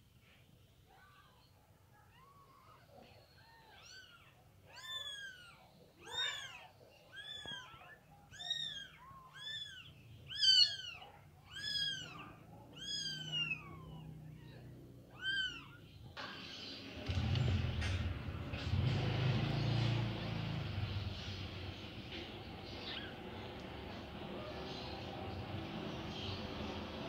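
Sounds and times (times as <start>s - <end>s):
kittens mewing: 2.0s - 16.1s, 22.6s - 23.4s.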